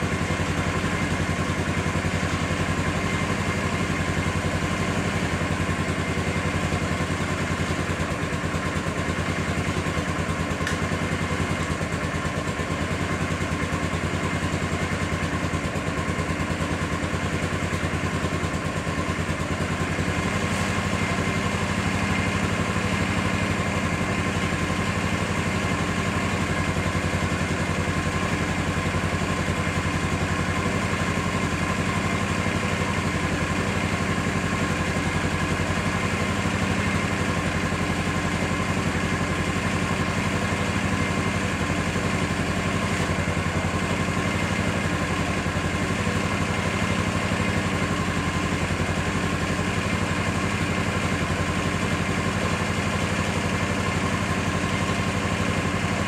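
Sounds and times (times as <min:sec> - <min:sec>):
motorcycle engine idling: 0:00.0 - 0:56.0.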